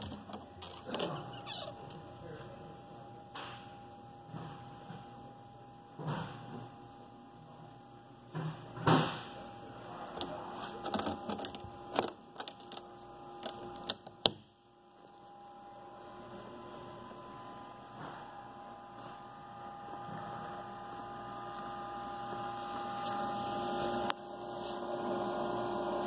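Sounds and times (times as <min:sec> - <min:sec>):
faint steady hum: 0:00.0 - 0:26.0
enclosure door shutting: 0:10.0 - 0:14.4.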